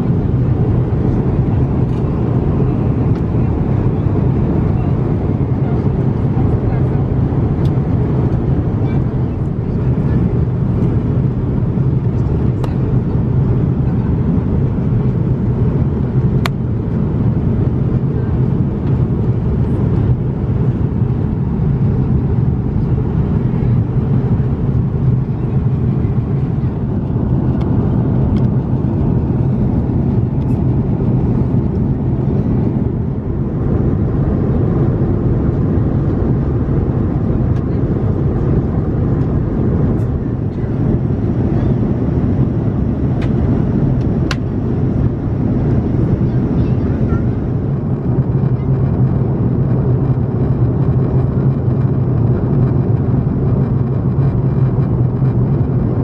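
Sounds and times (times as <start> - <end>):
airliner cabin engine noise: 0.0 - 56.0.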